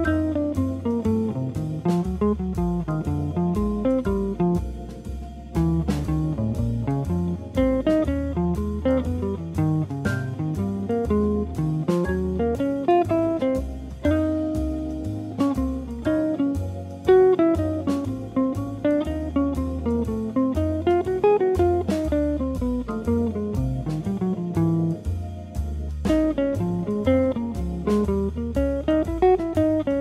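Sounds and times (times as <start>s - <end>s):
solo jazz electric guitar: 0.0s - 30.0s.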